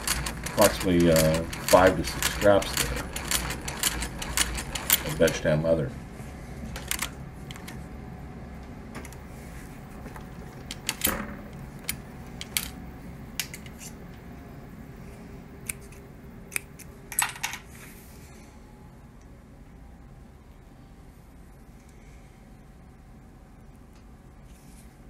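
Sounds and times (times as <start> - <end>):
sewing machine metallic clicks: 0.0 - 5.4
low steady hum: 0.0 - 25.0.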